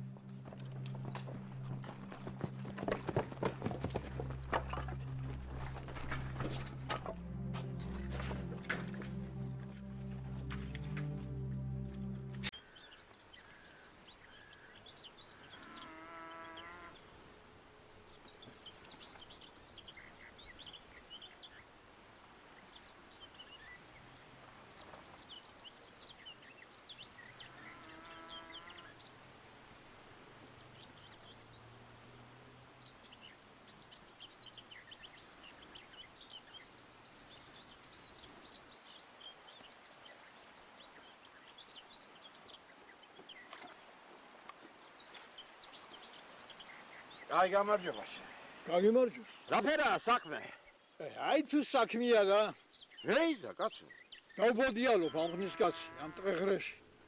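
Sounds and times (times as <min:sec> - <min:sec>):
faint outdoor ambience: 0:00.0 - 0:57.0
birds chirping and twittering: 0:12.0 - 0:22.0, 0:24.8 - 0:43.8, 0:44.9 - 0:57.0
drawn-out animal calls: 0:13.4 - 0:20.7, 0:27.3 - 0:32.6, 0:54.8 - 0:57.0.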